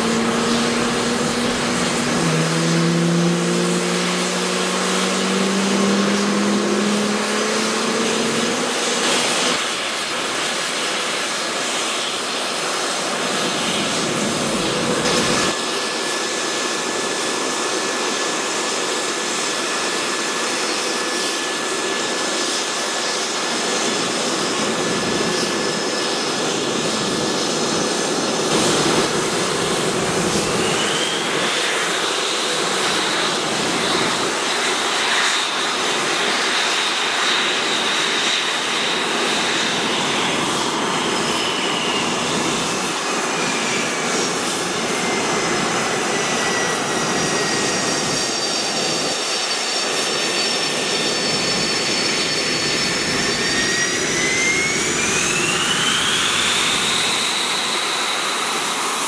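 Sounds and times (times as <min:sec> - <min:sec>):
jet engine running: 0:00.0 - 0:59.0.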